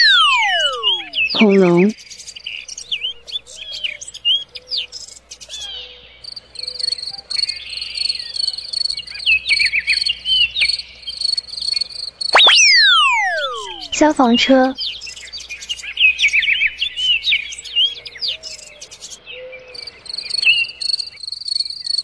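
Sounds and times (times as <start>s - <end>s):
downward sweeping whistle tone: 0.0s - 1.4s, 12.4s - 14.0s
birds chirping: 0.0s - 5.4s, 12.4s - 19.9s.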